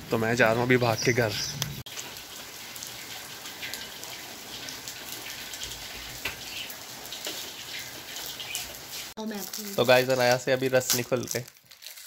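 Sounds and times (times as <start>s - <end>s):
rain on brick paving: 0.0s - 12.0s
rain splashing into puddles: 0.0s - 12.0s
water drips: 1.2s - 10.4s.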